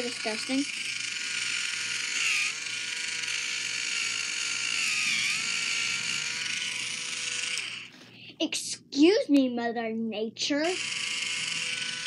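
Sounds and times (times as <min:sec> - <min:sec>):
electric foot file motor whine: 0:00.0 - 0:08.0, 0:10.7 - 0:12.0.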